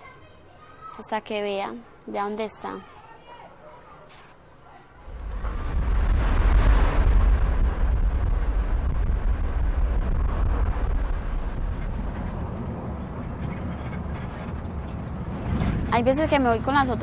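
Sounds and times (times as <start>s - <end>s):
engine and road rumble: 5.0s - 17.0s.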